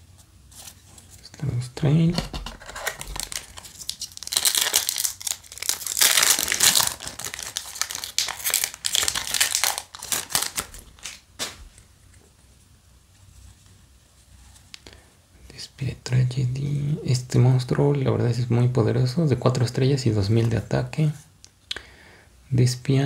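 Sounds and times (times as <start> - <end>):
foil wrapper crinkling and tearing: 2.4 - 11.6.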